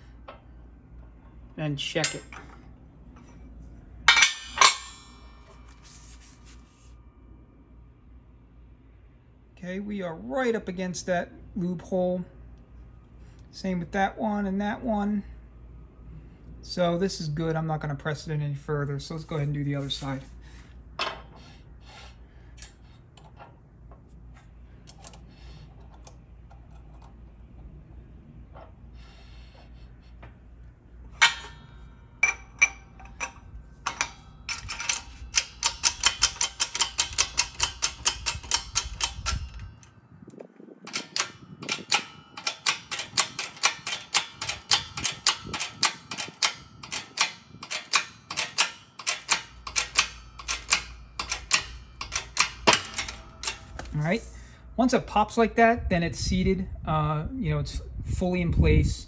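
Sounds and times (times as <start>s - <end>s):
hydraulic press metallic clicks: 4.1s - 5.5s, 31.1s - 39.9s, 40.9s - 54.0s.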